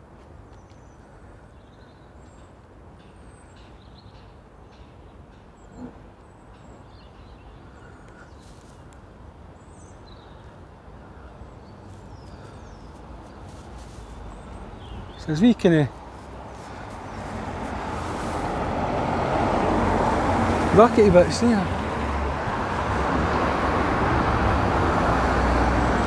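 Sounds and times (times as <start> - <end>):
small birds chirping: 0.5 - 18.9.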